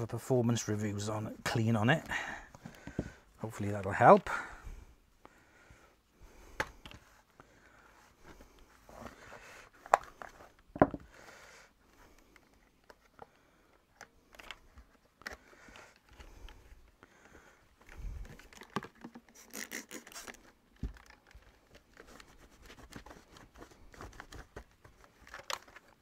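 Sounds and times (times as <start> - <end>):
plastic clicks and rubbing: 8.3 - 11.1, 12.0 - 26.0.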